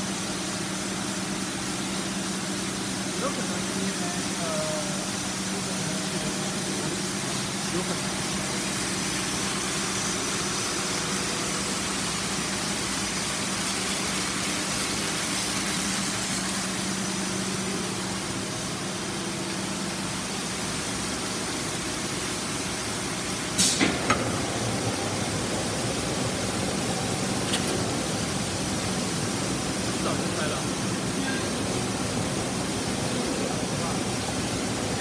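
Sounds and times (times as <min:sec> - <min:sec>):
water sprays and brushes hissing: 0:00.0 - 0:35.0
low motor hum: 0:23.8 - 0:35.0.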